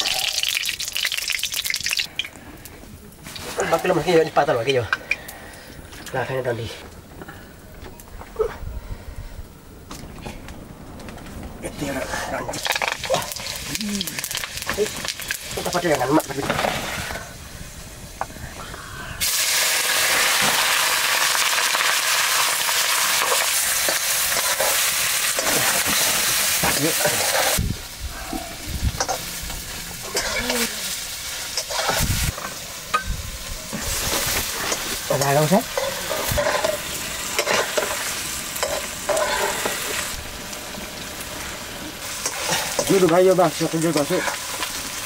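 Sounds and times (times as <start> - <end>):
food sizzling in hot oil: 0.0 - 2.3, 11.9 - 18.2, 19.2 - 45.0
stirring knocks and scrapes: 33.7 - 40.1.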